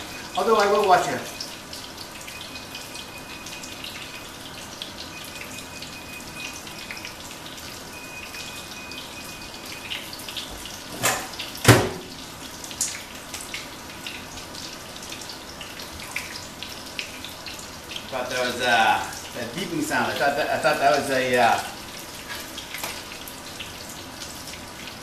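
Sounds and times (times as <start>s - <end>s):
fish sizzling in a frying pan: 0.0s - 25.0s
long high electronic beep: 2.3s - 4.4s, 5.1s - 7.2s, 7.9s - 9.9s.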